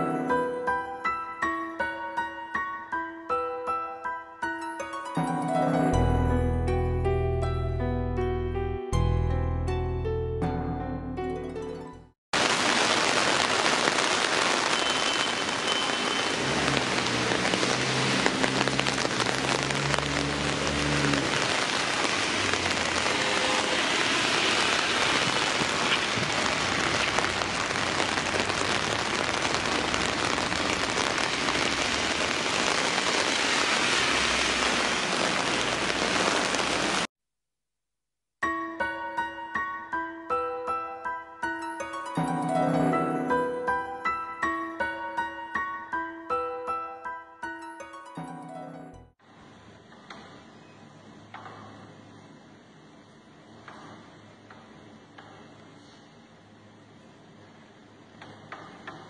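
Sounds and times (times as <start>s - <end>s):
heavy rain on wet street: 12.4s - 37.1s
passing vehicle engine hum: 16.4s - 24.7s.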